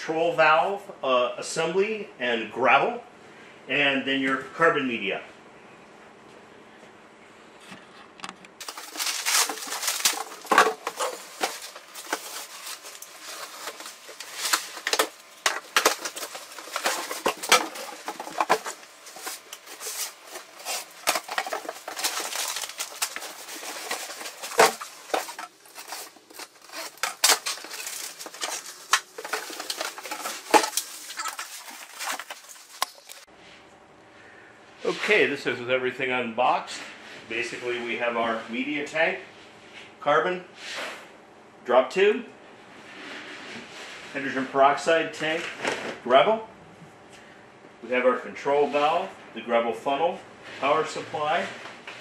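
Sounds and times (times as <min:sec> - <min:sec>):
cardboard and plastic rustling: 0:08.6 - 0:33.3.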